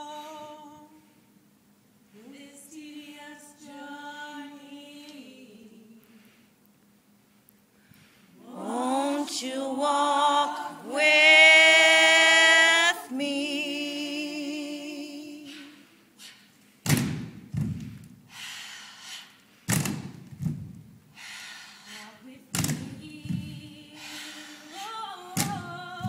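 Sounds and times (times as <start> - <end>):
person singing gospel unaccompanied: 0.0 - 1.2, 2.1 - 6.4, 8.3 - 16.0, 21.9 - 26.0
heavy thuds: 16.8 - 18.2, 19.7 - 21.0, 22.6 - 23.9, 25.4 - 26.0.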